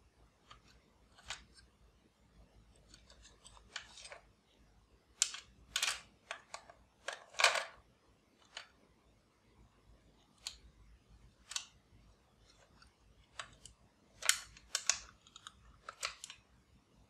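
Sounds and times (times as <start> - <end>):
batteries clicking and scraping: 0.4 - 1.8, 2.6 - 4.3, 5.2 - 7.8, 8.4 - 8.8, 12.4 - 16.5.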